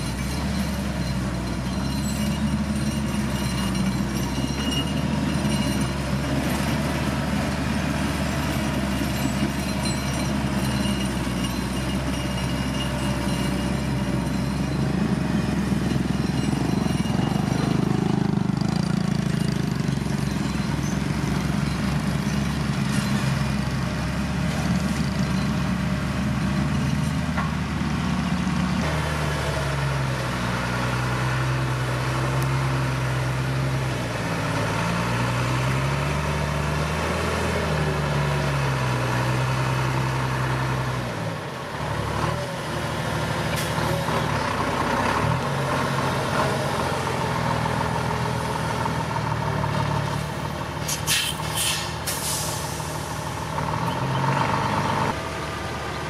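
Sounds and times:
heavy diesel engines revving: 0.0s - 56.0s
air brakes hissing: 50.1s - 53.4s.

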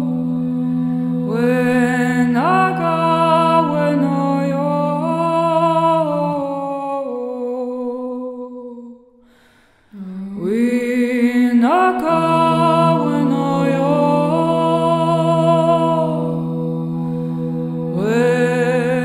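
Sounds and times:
wordless voice holding notes: 0.0s - 8.9s, 10.0s - 19.0s
low drone: 12.0s - 19.0s.

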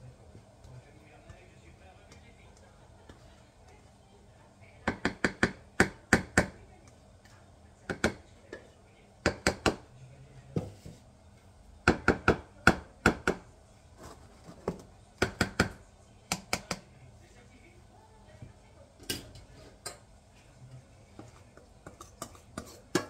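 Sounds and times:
spatula knocking and scraping pans: 21.1s - 23.0s.

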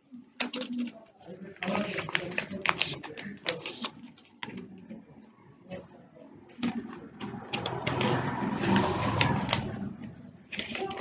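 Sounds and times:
paper rustling and crinkling: 0.4s - 5.0s, 6.6s - 11.0s.

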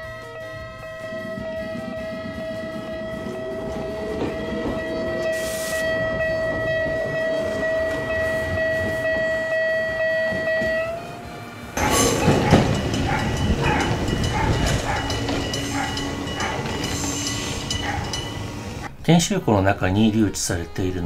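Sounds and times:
level-crossing alarm bell ringing: 0.0s - 10.5s, 11.8s - 18.9s
electric train passing: 0.0s - 19.7s.

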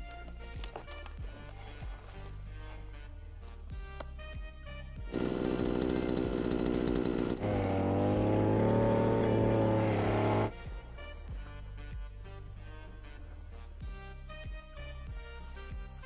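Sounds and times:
background music with a beat: 0.0s - 6.4s, 9.4s - 16.0s
brush cutter running: 5.1s - 10.5s.

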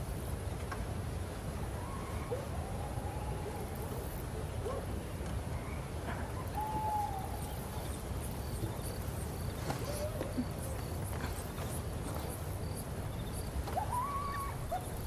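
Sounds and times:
crickets chirping: 6.0s - 15.0s
short whistled calls: 13.1s - 15.0s.

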